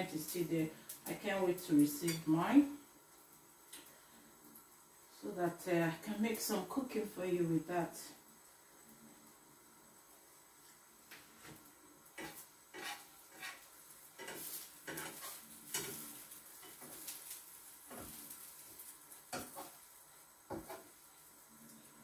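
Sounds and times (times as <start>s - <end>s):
faint sizzle: 0.0s - 22.0s
spatula scraping frying pan: 12.1s - 19.9s, 20.5s - 21.0s.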